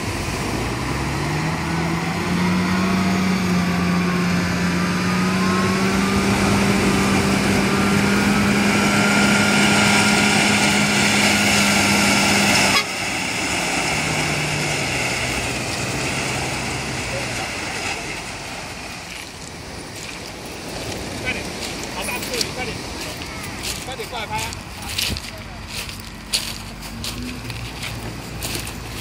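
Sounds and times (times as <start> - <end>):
surf hissing: 0.0 - 25.6
heavy machine engine running: 0.0 - 29.0
low engine note: 0.0 - 29.0.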